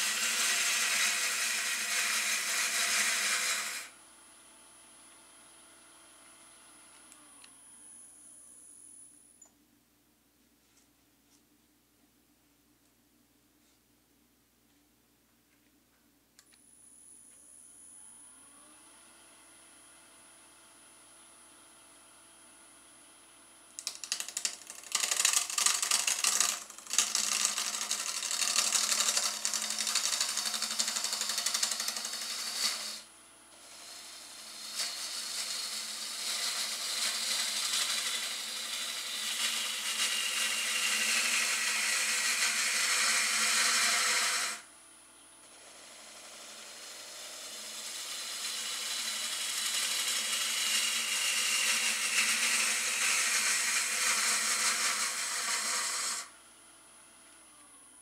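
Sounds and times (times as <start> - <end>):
gouge scraping spinning wood: 0.0 - 3.9, 23.8 - 44.6, 45.4 - 56.3
wood lathe humming: 0.0 - 4.0, 23.8 - 44.7, 45.4 - 56.4.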